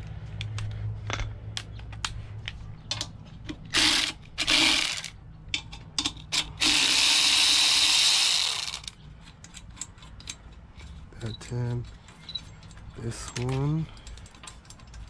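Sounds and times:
ratchet wrench clicking: 3.7 - 5.2, 6.0 - 10.6.

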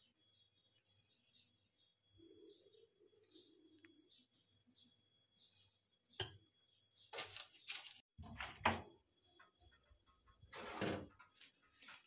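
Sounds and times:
baking tray rattling and scraping: 9.6 - 12.0.

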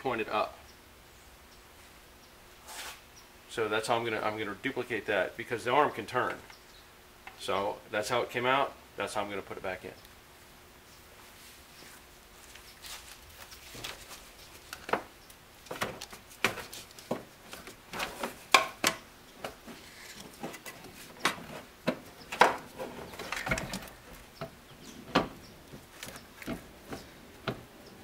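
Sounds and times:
metal parts clicking and clunking: 14.6 - 27.6.

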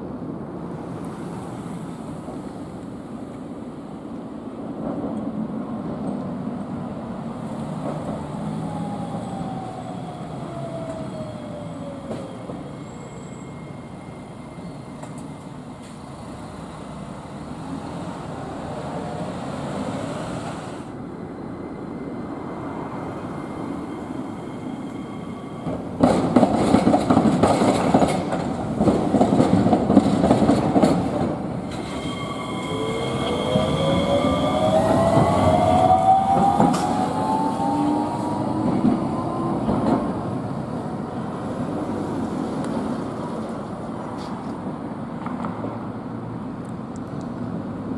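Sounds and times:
tram motor whine: 7.2 - 29.0, 30.8 - 41.2
wheels clattering over rail joints: 25.7 - 33.9.

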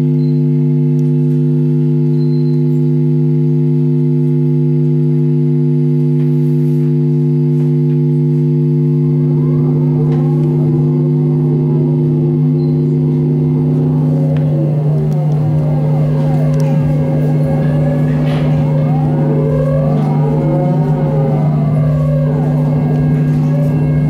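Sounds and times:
electronic drone music: 0.0 - 24.0
low rumble: 8.6 - 24.0
swirling rising and falling tones: 8.8 - 24.0.

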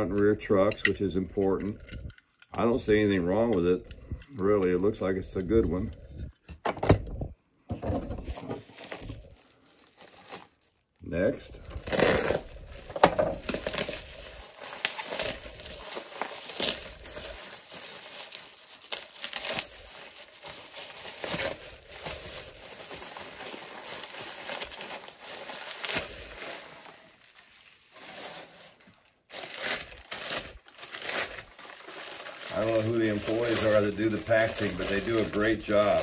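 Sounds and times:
bubble wrap crinkling: 8.3 - 36.0.

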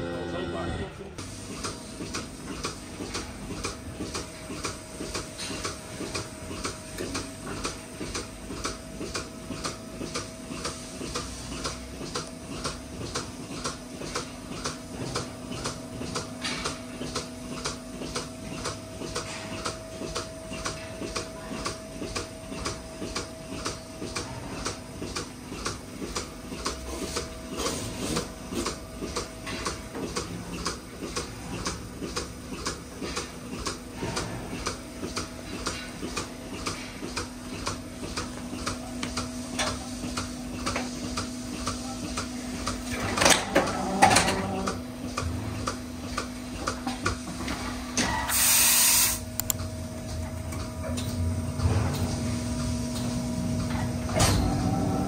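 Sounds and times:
machine hum with rhythmic clicking: 0.0 - 55.0
loud hiss: 48.3 - 49.2.

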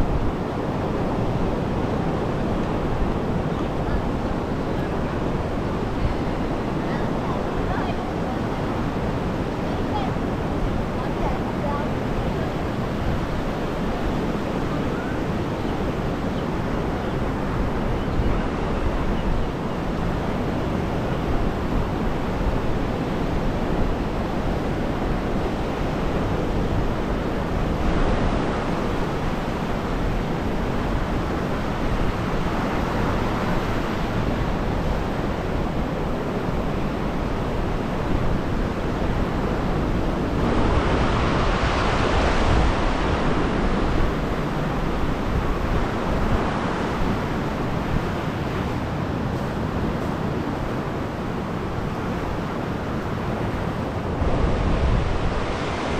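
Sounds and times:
wind rumbling on microphone: 0.0 - 55.9
surf breaking on shore: 18.8 - 55.9.

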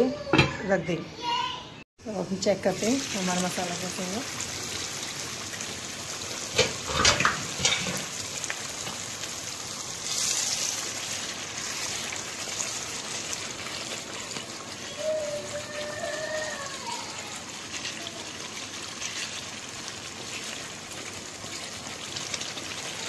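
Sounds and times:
masala sizzling in oil: 2.0 - 23.0
spatula scraping pan: 6.6 - 8.1.

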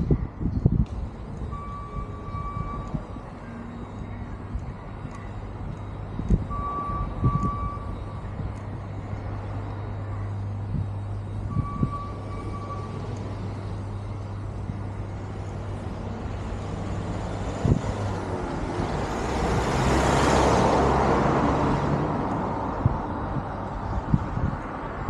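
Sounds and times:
steady low hum: 0.0 - 19.8
vehicle driving past: 8.9 - 25.0.

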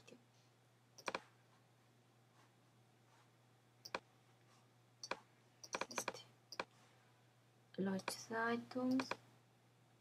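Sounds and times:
faint steady hum: 0.0 - 10.0
computer mouse clicks: 1.0 - 1.3, 3.8 - 4.1, 5.0 - 6.7, 8.0 - 8.2, 8.8 - 9.2.

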